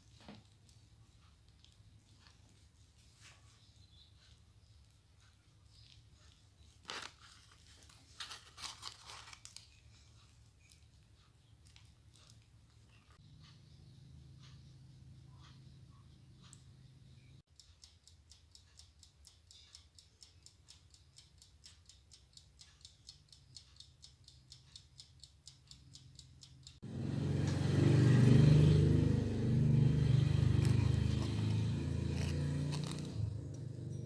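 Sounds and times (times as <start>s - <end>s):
mechanical timer ticking: 17.2s - 26.9s.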